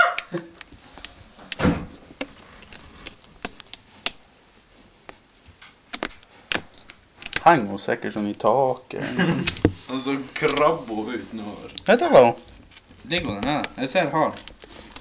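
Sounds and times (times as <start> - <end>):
dull thump: 1.6 - 2.0, 9.3 - 9.9.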